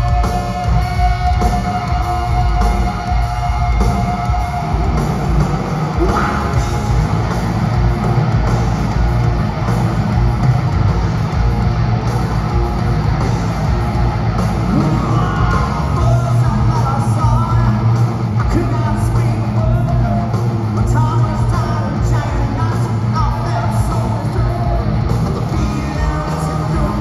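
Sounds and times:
hard rock band playing: 0.0s - 27.0s
lead vocal singing: 5.9s - 7.1s, 14.6s - 27.0s.

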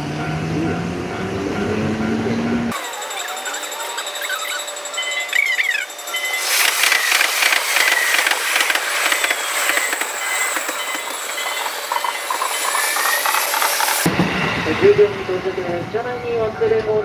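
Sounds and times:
crossing warning bell: 0.0s - 13.9s, 15.9s - 17.0s
train wheels hissing on rails: 6.2s - 15.9s.

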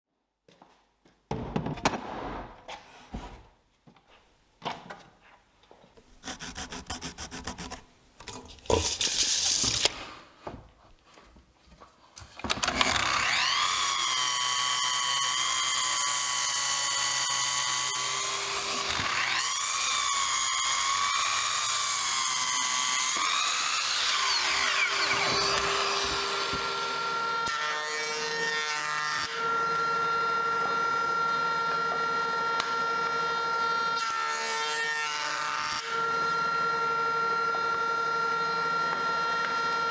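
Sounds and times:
wooden slab knocks and thuds: 1.3s - 3.5s
miter saw cutting wood: 6.2s - 7.8s, 12.5s - 39.9s.

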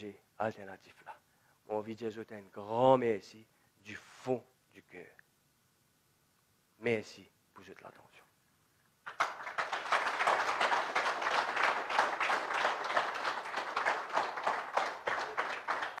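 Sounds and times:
audience applauding: 9.0s - 16.0s.

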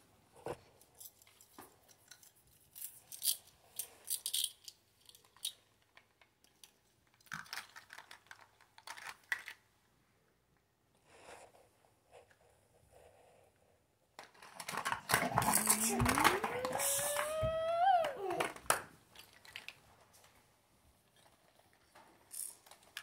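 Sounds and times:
plastic toys clicking and clattering: 0.8s - 9.7s, 14.2s - 20.4s, 21.1s - 23.0s.

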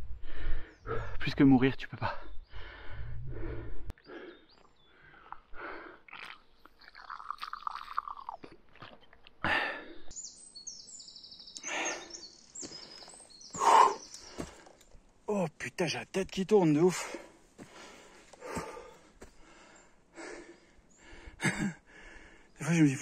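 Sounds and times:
gasping breaths: 2.5s - 6.1s, 12.8s - 14.8s, 17.0s - 22.5s.

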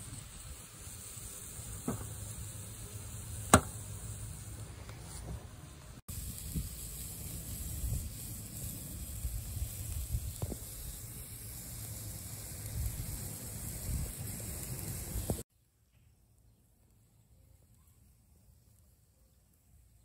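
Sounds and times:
meat sizzling on charcoal grill: 0.0s - 15.5s
faint pop: 3.5s - 3.8s
wind rumbling on microphone: 8.9s - 10.8s, 12.6s - 14.2s.

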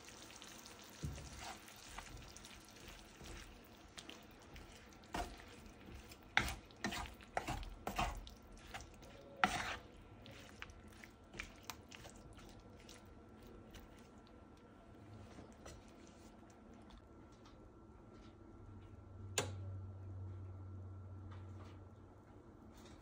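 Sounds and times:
food sizzling: 0.0s - 13.9s
spatula scraping frying pan: 1.2s - 12.2s.

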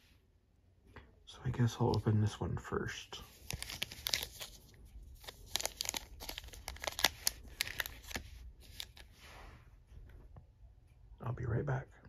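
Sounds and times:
foil pack crinkling: 3.3s - 9.1s.

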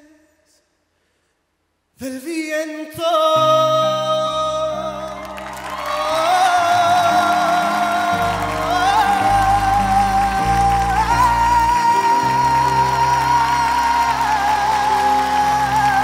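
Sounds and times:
piano chords: 3.4s - 16.0s.

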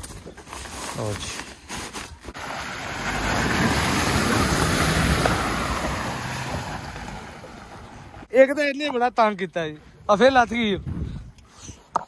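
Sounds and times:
tyres splashing through water: 2.4s - 8.2s.

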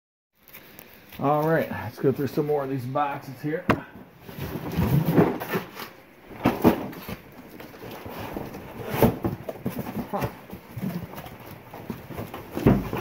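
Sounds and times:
rummaging through box: 4.2s - 13.0s.

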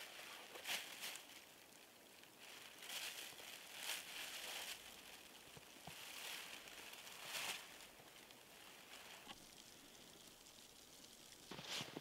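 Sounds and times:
plastic bag rustling: 0.0s - 1.7s, 2.3s - 9.4s.

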